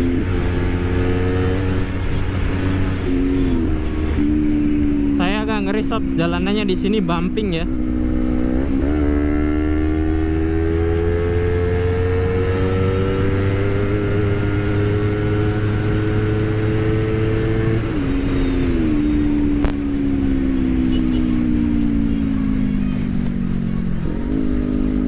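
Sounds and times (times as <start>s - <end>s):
motorcycle engine at high speed: 0.0s - 25.0s.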